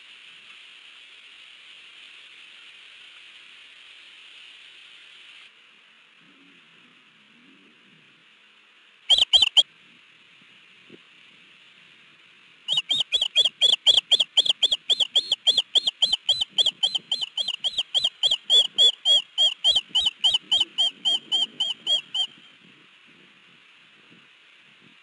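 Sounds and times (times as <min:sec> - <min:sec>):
bird alarm chirps: 0:09.1 - 0:09.6, 0:12.7 - 0:22.5.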